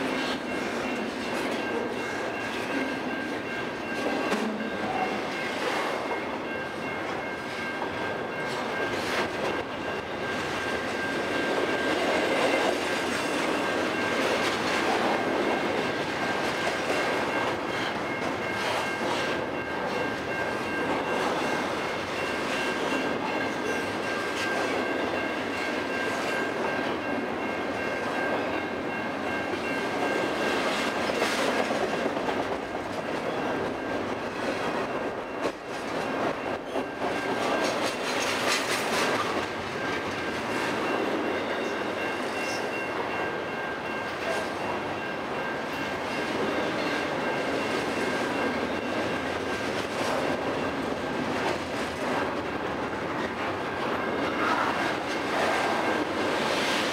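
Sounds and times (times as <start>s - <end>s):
freight train wheels rumbling: 0.0s - 56.9s
high-pitched ring: 39.7s - 49.3s.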